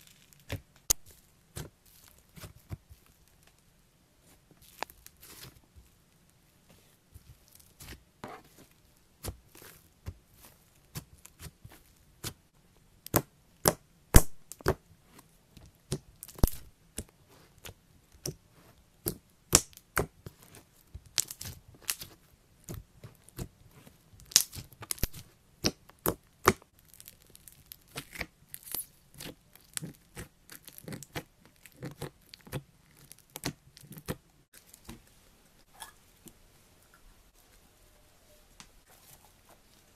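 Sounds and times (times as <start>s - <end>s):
slime clicking and crackling: 15.7s - 18.4s, 19.0s - 23.5s, 24.2s - 35.0s.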